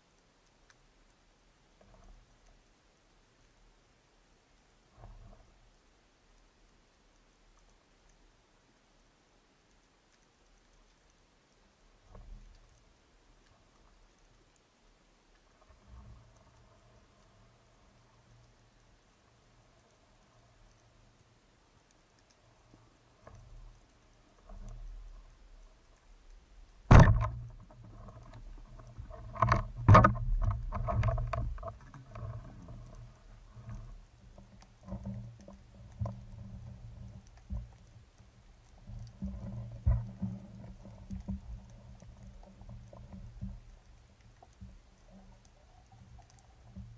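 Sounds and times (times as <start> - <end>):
underwater rumbling and clattering: 22.6 - 46.9
loud knocks: 26.9 - 27.4.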